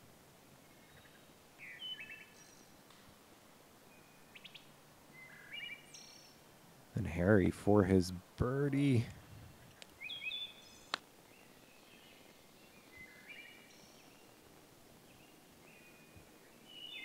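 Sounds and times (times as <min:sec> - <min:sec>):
faint songbird chirps: 0:00.5 - 0:02.9, 0:03.8 - 0:06.5, 0:09.6 - 0:17.0.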